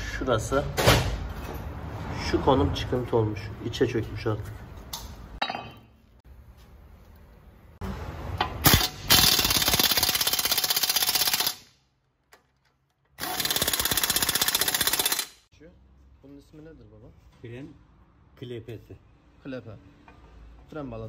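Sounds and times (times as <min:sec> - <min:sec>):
impact wrench hammering: 0:08.4 - 0:11.7, 0:13.2 - 0:15.4.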